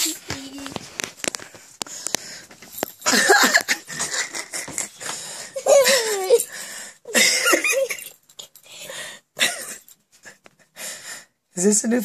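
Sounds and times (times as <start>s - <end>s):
people laughing: 3.1s - 5.0s.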